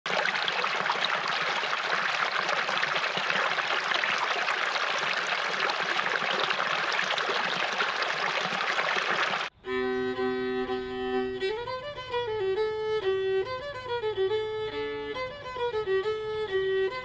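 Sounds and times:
creek water flowing: 0.1s - 9.6s.

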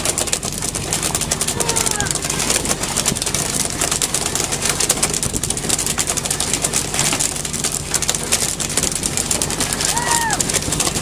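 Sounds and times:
boat engine running: 0.0s - 11.0s
wind and sea rushing: 0.0s - 11.0s.

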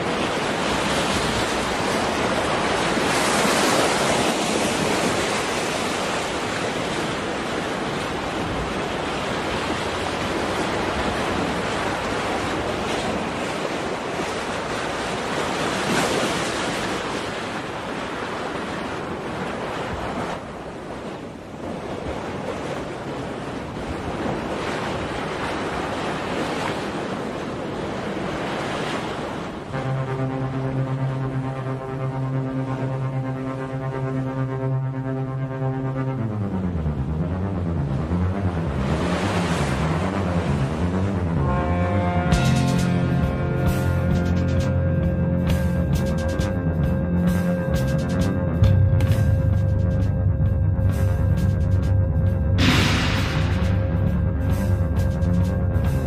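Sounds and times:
steady rushing noise: 29.4s - 56.0s.

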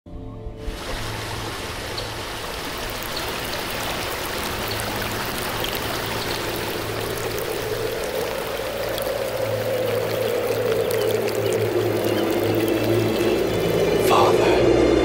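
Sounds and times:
running water trickling: 0.6s - 14.4s
small water drips: 0.8s - 14.1s
faint low drone: 1.2s - 15.0s.

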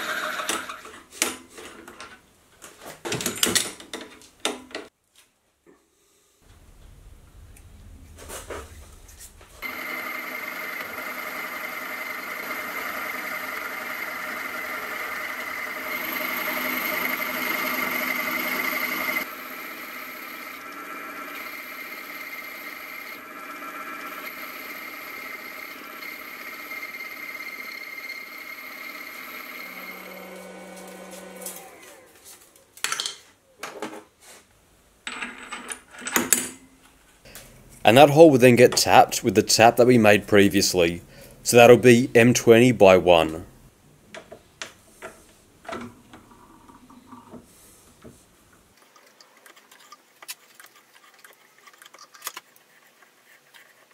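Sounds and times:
milling machine motor whine: 9.6s - 32.2s
spindle winding down: 9.6s - 32.2s.

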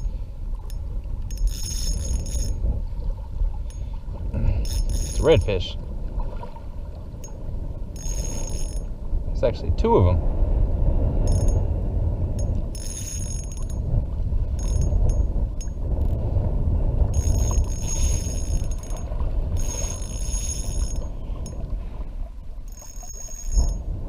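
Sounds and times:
wind rumble on microphone: 0.0s - 24.0s
fishing reel gears whining: 0.7s - 2.6s, 4.6s - 5.6s, 8.0s - 8.9s, 11.2s - 11.6s, 12.4s - 13.8s, 14.6s - 15.8s, 17.1s - 19.0s, 19.6s - 21.1s, 22.7s - 23.8s.

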